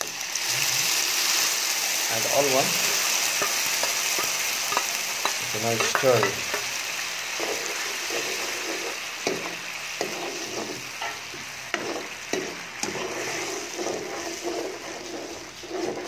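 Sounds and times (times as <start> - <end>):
sauce sizzling in a wok: 0.0 - 16.0
spoon scraping against pan: 2.4 - 16.0.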